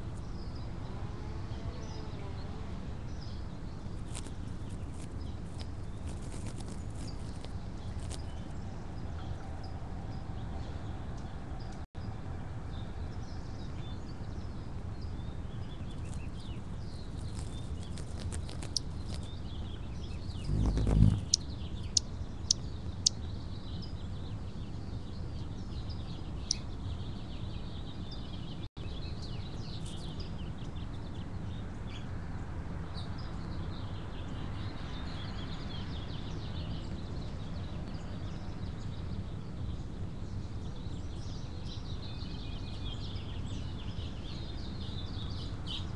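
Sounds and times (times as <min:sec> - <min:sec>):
songbirds chirping and singing: 0:12.7 - 0:32.1.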